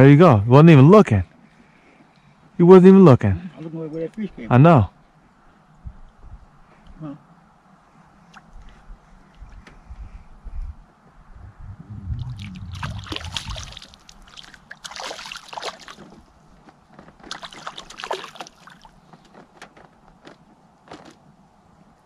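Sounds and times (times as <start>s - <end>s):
low rumble: 10.5s - 14.3s
water splashing and sloshing: 11.6s - 21.2s.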